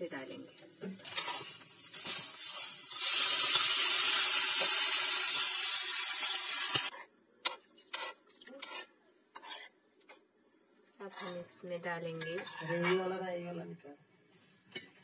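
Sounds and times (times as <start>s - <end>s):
carrots sizzling in hot fat: 0.1s - 7.0s.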